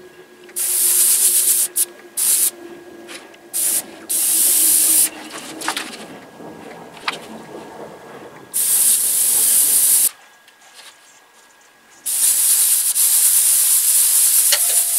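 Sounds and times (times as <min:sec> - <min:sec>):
airbrush spraying hiss: 0:00.6 - 0:02.5, 0:03.6 - 0:05.1, 0:08.6 - 0:10.1, 0:12.0 - 0:14.9.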